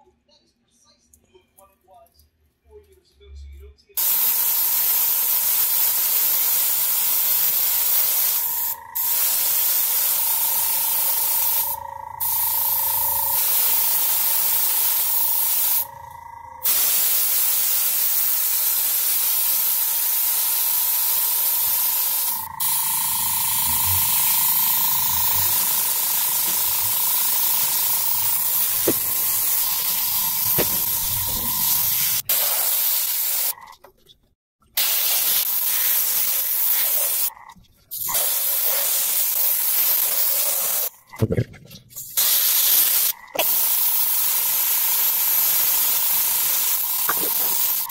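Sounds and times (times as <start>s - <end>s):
airbrush hissing: 4.0s - 33.6s, 34.8s - 37.3s, 38.0s - 40.9s, 42.2s - 47.9s
faint steady whine: 8.4s - 18.8s.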